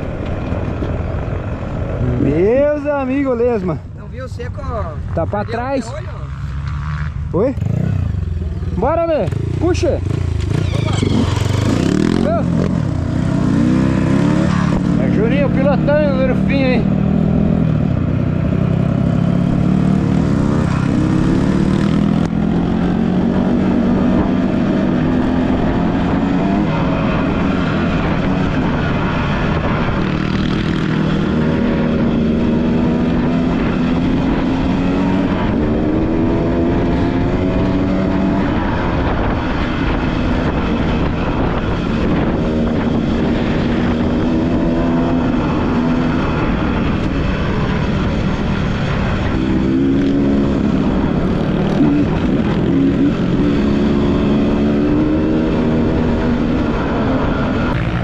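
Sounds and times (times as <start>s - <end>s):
motorcycle engine revving: 5.0s - 58.0s.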